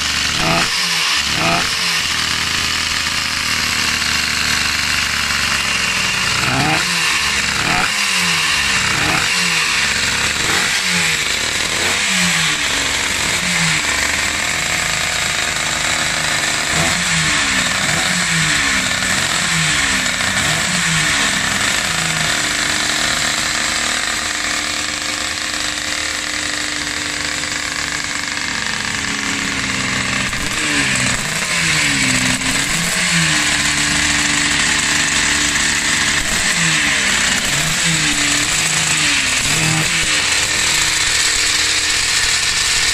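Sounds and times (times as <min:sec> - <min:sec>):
racing engine revving: 0:00.0 - 0:42.9.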